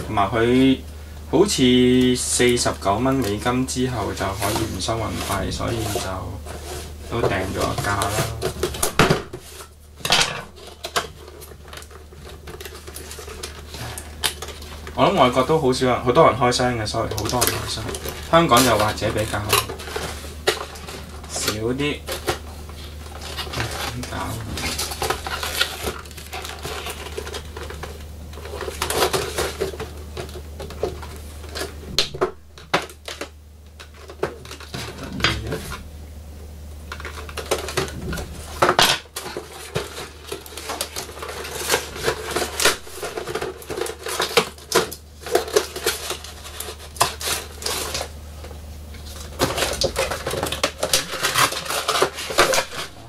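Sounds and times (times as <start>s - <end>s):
cardboard packaging being handled: 1.6s - 35.9s, 36.9s - 53.0s
cutting tool scraping packaging: 10.6s - 15.4s, 17.0s - 31.8s, 37.0s - 48.1s, 49.1s - 53.0s.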